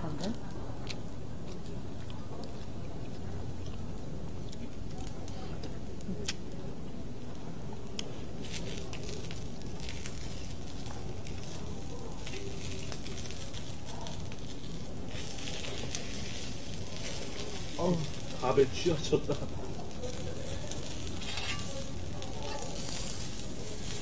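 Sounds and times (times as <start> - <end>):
meat sizzling on a griddle: 8.1 - 24.0.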